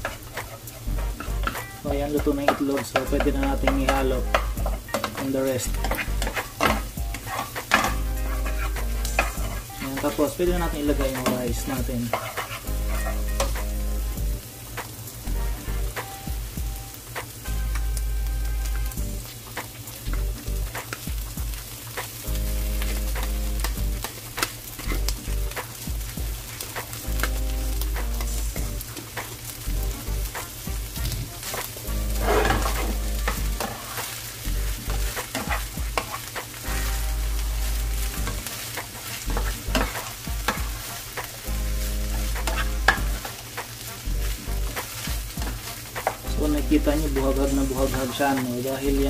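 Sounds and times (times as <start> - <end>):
utensil scraping a pan: 0.0 - 13.8, 30.3 - 48.7
rice sizzling in a pan: 0.0 - 49.0.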